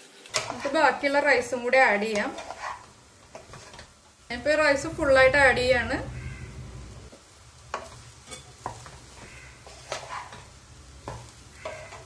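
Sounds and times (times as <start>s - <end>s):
faint sizzle: 0.0s - 12.0s
spatula scraping pot: 0.3s - 1.3s, 2.0s - 3.9s, 7.7s - 12.0s.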